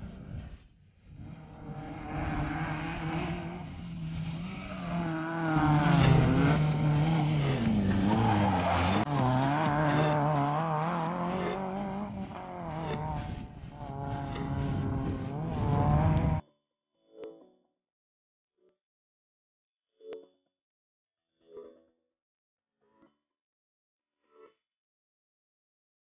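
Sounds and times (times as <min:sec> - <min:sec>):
car engine revving hard: 0:01.2 - 0:16.4.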